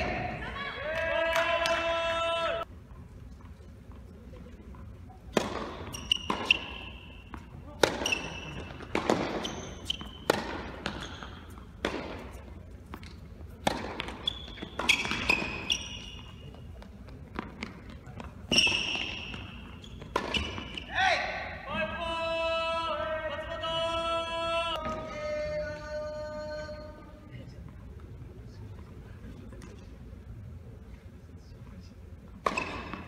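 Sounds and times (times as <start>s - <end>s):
shoes squeaking on court: 3.0s - 21.0s, 32.4s - 33.0s
tennis ball bounces: 5.2s - 20.8s, 32.4s - 33.0s
tennis racket strikes: 5.3s - 12.4s.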